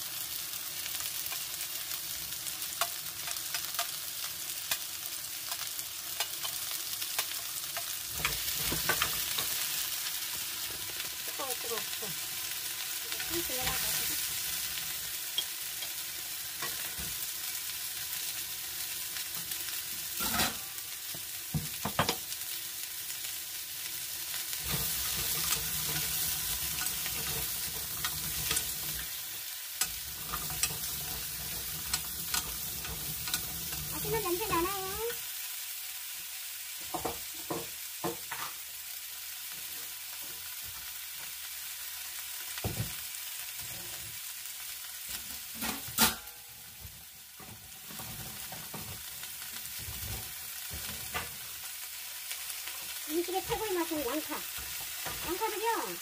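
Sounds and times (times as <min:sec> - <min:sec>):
vegetables sizzling in oil: 0:00.0 - 0:56.0
wooden spoon knocking on a pan: 0:21.5 - 0:22.2.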